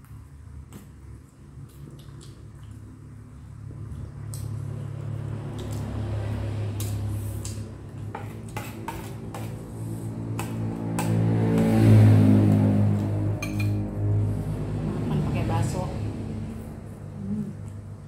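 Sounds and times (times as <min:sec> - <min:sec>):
low steady hum: 0:00.0 - 0:18.0
spoon clinking on ceramic plates: 0:13.4 - 0:13.8.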